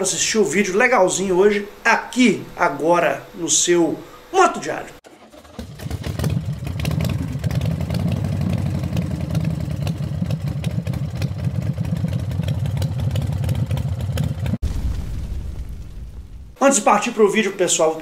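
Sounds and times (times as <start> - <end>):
motorcycle engine idling: 5.3 - 14.6.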